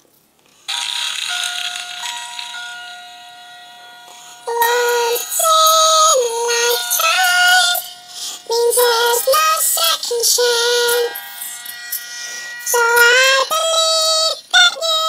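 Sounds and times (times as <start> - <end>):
pitch-corrected female singing: 4.4 - 11.8, 12.6 - 15.0.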